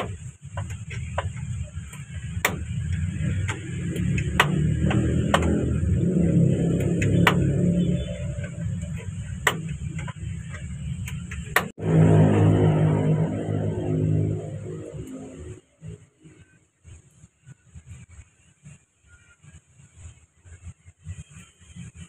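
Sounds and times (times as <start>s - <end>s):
steady low drone: 11.7s - 16.1s.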